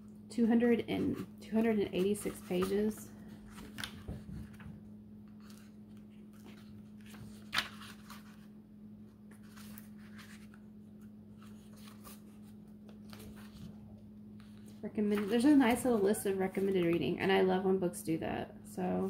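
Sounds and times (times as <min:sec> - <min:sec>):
book pages turning: 0:00.7 - 0:17.2.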